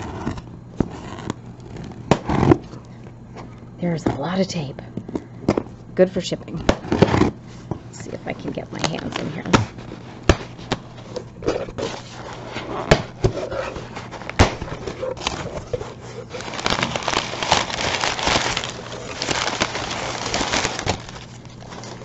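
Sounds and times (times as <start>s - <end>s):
packing paper rustling: 8.2s - 22.0s.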